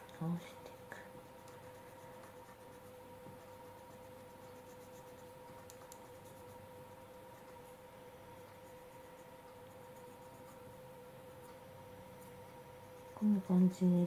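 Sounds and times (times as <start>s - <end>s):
faint steady hum: 0.0s - 14.0s
pencil scratching on paper: 1.2s - 7.7s, 8.5s - 10.8s, 12.8s - 13.8s.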